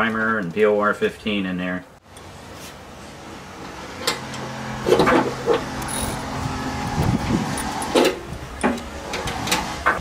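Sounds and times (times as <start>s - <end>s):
mechanical hum: 2.0s - 10.0s.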